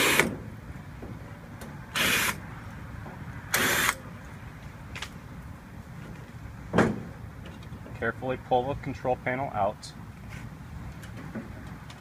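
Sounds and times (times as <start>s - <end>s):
cordless drill running: 2.0s - 2.4s, 3.6s - 4.0s.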